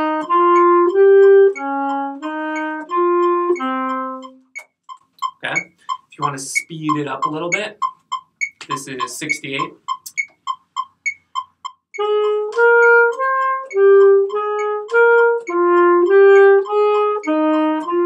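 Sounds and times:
alto saxophone slow melody: 0.0 - 4.5, 12.0 - 18.0
metronome ticking: 0.0 - 18.0.

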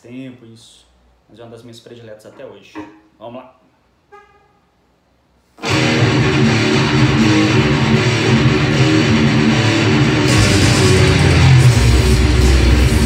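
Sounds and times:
electric guitar riff: 5.6 - 13.0.

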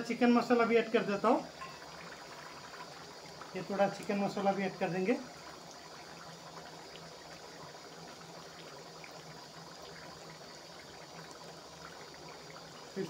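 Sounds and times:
curry bubbling at a simmer: 0.0 - 13.0.

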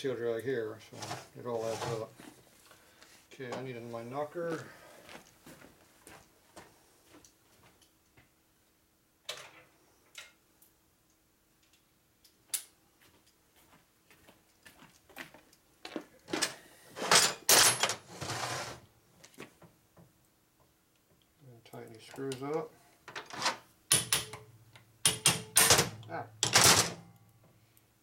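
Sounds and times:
metal parts clattering: 16.4 - 18.5, 23.1 - 24.4, 25.1 - 27.0
tools knocking and clicking: 23.1 - 27.1.

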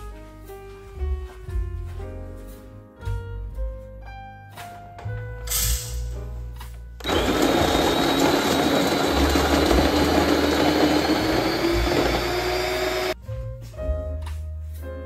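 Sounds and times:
electric coffee grinder whine: 7.0 - 13.2.

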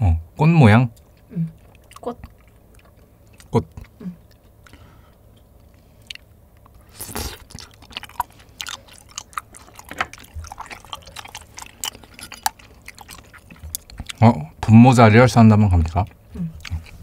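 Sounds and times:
chewing noodles: 1.0 - 4.7, 5.6 - 14.4, 15.8 - 17.0
wet mouth sound: 6.9 - 14.2.

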